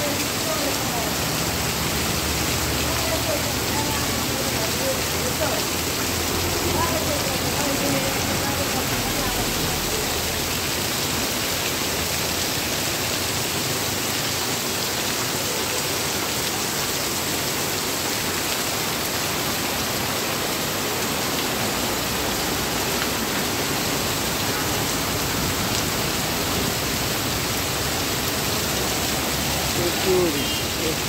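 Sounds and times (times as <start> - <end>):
heavy rain on paved street: 0.0 - 31.0.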